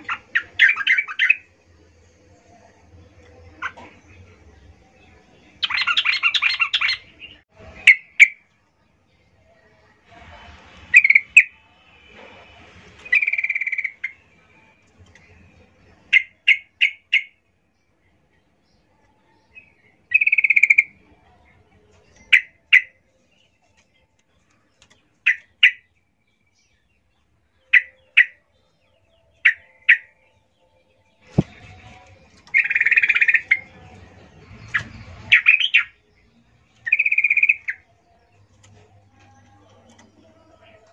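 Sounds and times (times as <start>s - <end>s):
bird chirping and chattering: 0.0s - 1.5s, 5.6s - 8.4s, 20.1s - 21.1s, 29.3s - 30.3s, 31.2s - 37.9s.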